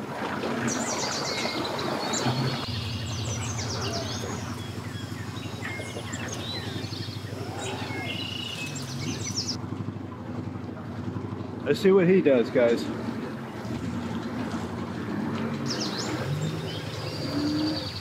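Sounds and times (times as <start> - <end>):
outboard motor humming: 0.0 - 18.0
propeller churning water: 0.0 - 18.0
birds chirping: 0.6 - 10.1, 11.0 - 18.0.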